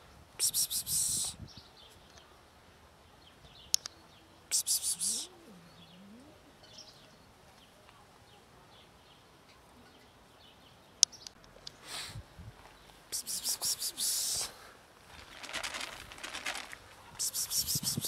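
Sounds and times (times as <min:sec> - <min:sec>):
faint bird chirps: 0:03.1 - 0:11.4
sharp clicks: 0:03.7 - 0:04.0
loud rustling: 0:15.1 - 0:16.9.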